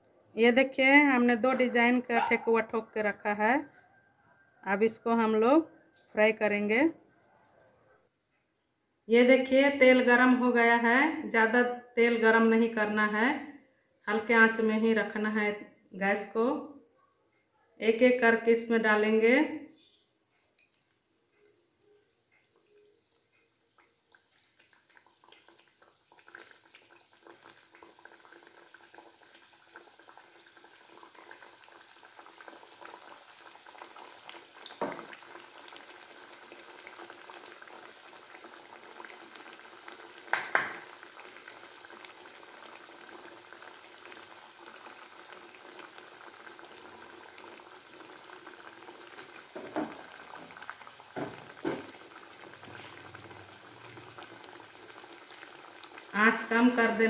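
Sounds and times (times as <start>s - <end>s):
dough deep-frying in oil: 19.7s - 57.0s.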